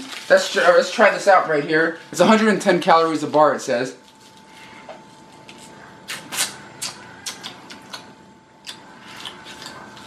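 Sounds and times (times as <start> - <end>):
faint steady hum: 0.0 - 10.0
mouth clicks: 6.1 - 8.9.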